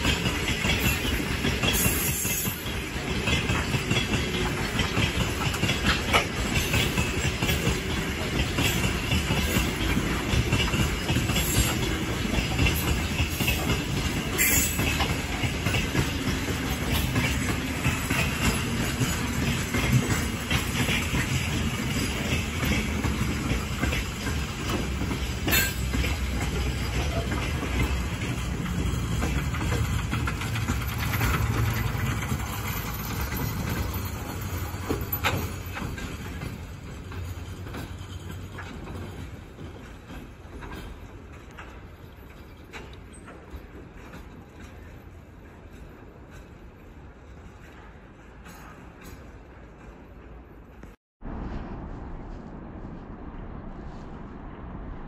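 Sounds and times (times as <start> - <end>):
train wheels clattering and rumbling: 0.0 - 55.0.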